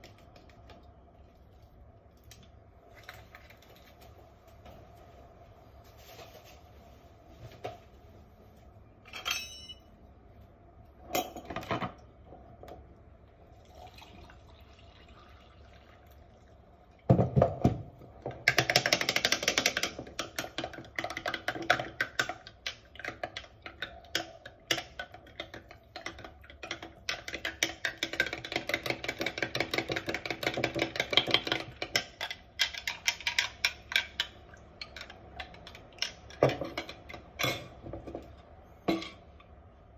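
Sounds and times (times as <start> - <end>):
spoon stirring in glass jar: 20.4 - 37.7.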